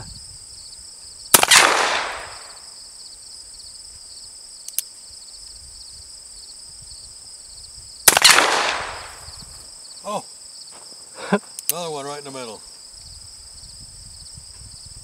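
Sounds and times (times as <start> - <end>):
high insect drone: 0.0 - 15.0
revolver shots: 1.4 - 2.6, 8.1 - 9.2.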